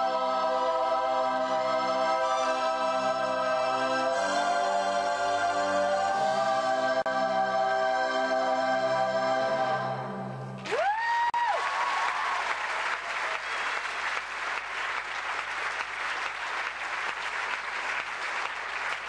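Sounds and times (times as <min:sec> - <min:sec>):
audience applauding: 0:10.6 - 0:19.0
crowd cheering: 0:10.6 - 0:19.0.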